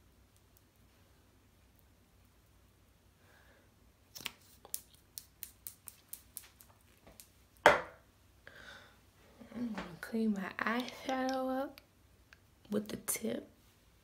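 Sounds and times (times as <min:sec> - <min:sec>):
makeup items clicking: 0:10.7 - 0:11.9.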